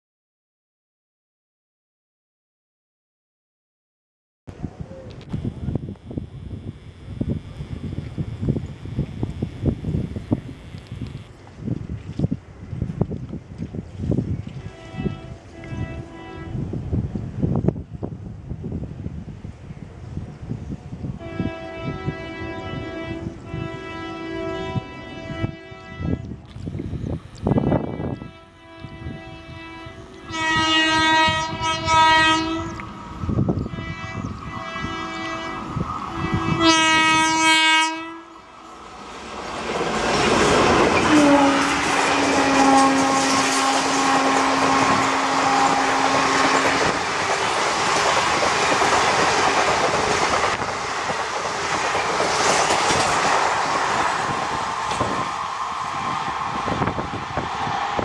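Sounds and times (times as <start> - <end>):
long low tone: 4.6 - 11.3
train horn blasts: 5.2 - 11.3, 14.5 - 16.7, 21.2 - 38.8, 40.6 - 47.0
passing train rumble: 6.1 - 58.0.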